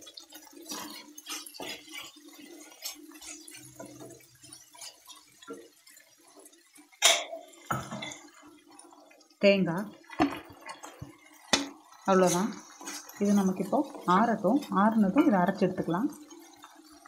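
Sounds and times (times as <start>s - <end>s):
oil sizzling: 0.0s - 17.0s
wooden spatula scraping a pan: 0.6s - 5.6s, 12.1s - 15.3s.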